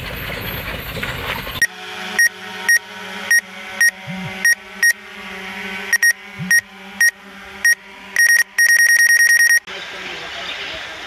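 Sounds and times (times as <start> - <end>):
low hum: 0.0 - 10.5
high-pitched electronic beeps: 2.2 - 5.0, 5.9 - 9.7.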